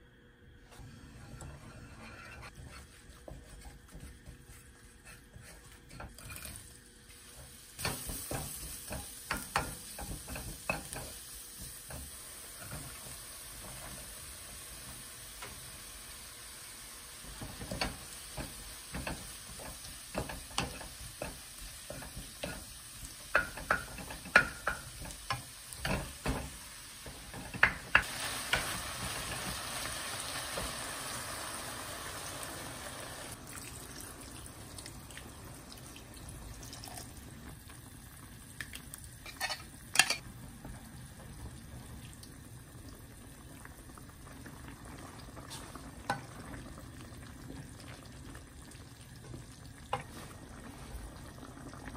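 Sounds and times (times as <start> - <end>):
spatula scraping a wok: 0.7 - 6.8
food sizzling in oil: 2.5 - 37.6, 39.1 - 40.3, 43.2 - 51.9.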